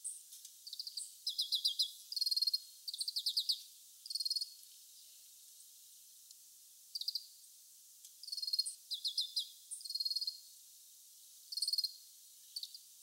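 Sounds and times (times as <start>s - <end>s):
finch trilled twittering: 1.3s - 1.9s, 8.9s - 9.5s.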